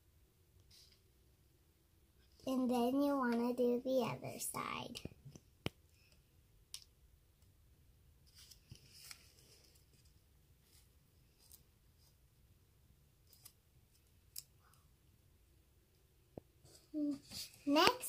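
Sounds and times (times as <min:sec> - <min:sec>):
soft rustle: 0:08.2 - 0:12.4, 0:16.5 - 0:18.0.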